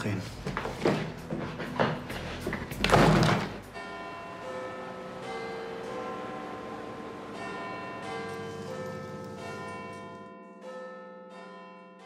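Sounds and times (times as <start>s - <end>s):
church bells ringing a peal: 3.7s - 12.0s.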